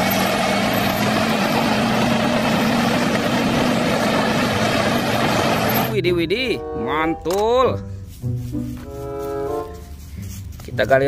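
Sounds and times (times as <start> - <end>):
bulldozer diesel engine drone: 0.0 - 6.0.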